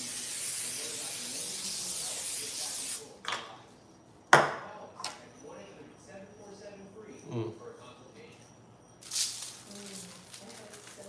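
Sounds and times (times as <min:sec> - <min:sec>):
aerosol spray hissing: 0:00.0 - 0:03.1.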